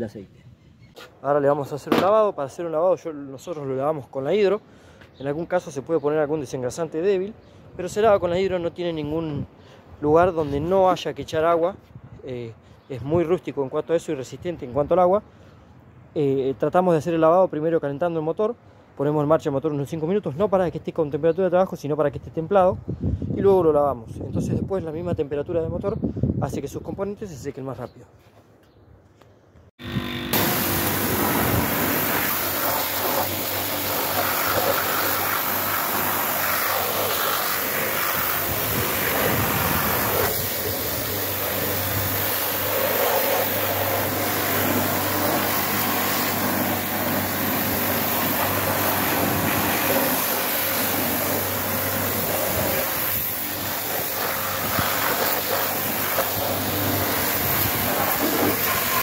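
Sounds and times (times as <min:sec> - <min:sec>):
pressure washer water jet hissing: 0:30.3 - 0:59.0.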